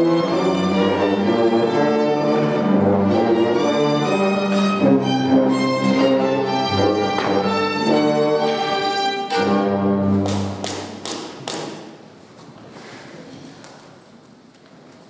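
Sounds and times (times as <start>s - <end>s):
orchestral string music: 0.0s - 10.9s.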